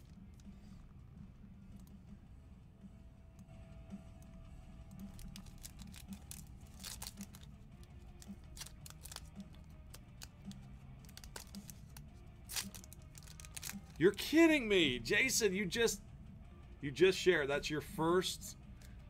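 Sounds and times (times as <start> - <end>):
faint low hum: 0.0 - 14.2
foil wrapper crinkling: 5.1 - 7.5, 8.2 - 10.3, 11.0 - 14.0.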